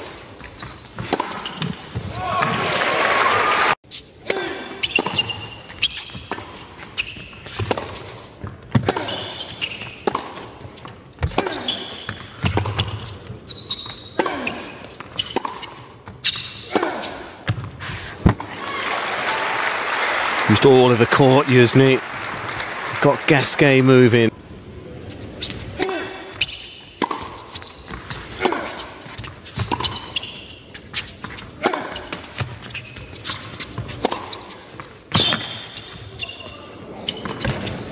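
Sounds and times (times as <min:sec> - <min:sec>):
racket striking tennis ball: 0:00.0 - 0:02.6, 0:04.3 - 0:13.3, 0:13.9 - 0:18.5, 0:25.4 - 0:30.3, 0:33.3 - 0:35.7
shoes squeaking on court: 0:00.0 - 0:02.8, 0:03.9 - 0:18.5, 0:24.9 - 0:37.9
tennis ball bouncing: 0:00.4 - 0:02.6, 0:04.9 - 0:18.5, 0:26.3 - 0:35.5.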